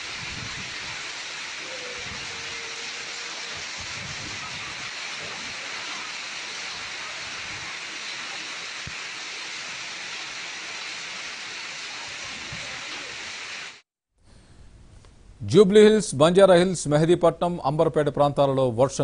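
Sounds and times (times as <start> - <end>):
heavy rain pouring: 0.0 - 13.8.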